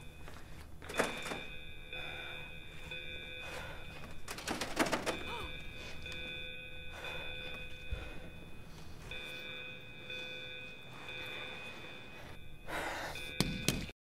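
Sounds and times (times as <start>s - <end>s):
door handle and lock rattling: 4.3s - 5.3s.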